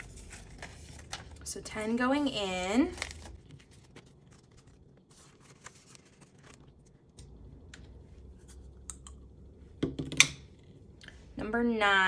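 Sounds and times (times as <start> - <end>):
light taps and rustles of plastic pages: 0.0 - 1.6, 2.8 - 7.9
low room hum: 0.0 - 12.0.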